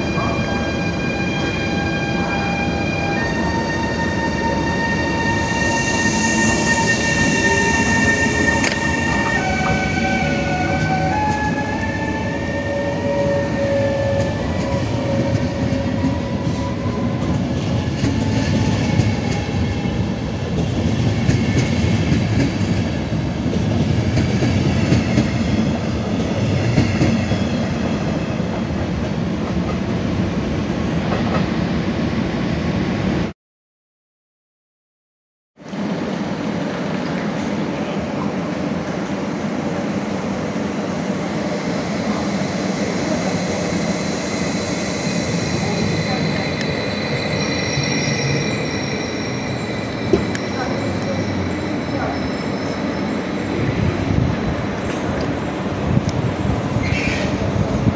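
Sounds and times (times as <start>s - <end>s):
electric locomotive whine: 0.0s - 29.8s, 35.7s - 57.9s
train coaches rolling on rails: 36.5s - 57.9s.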